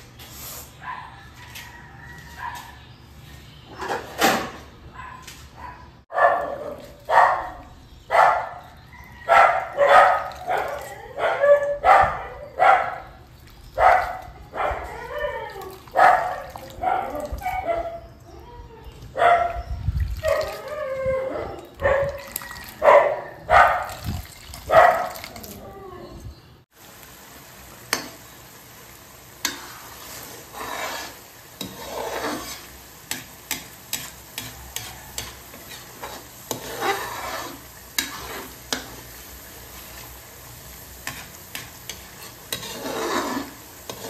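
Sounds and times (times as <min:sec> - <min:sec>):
dog barking: 0:00.8 - 0:01.2, 0:04.9 - 0:08.7, 0:09.3 - 0:13.1, 0:13.8 - 0:18.0, 0:19.2 - 0:19.6, 0:20.2 - 0:24.0, 0:24.7 - 0:25.2.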